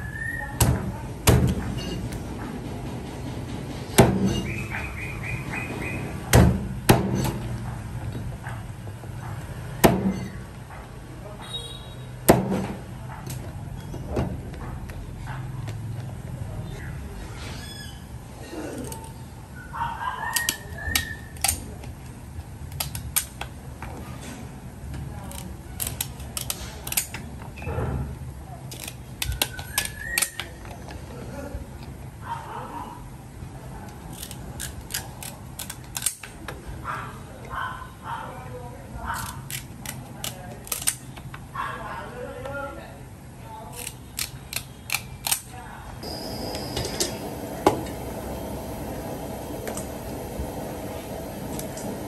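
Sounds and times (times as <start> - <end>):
scissors snipping crab shell: 22.7 - 23.4, 25.2 - 27.2, 28.7 - 30.6, 34.0 - 36.3, 39.1 - 41.1, 43.7 - 45.5
steady low hum: 46.0 - 52.0.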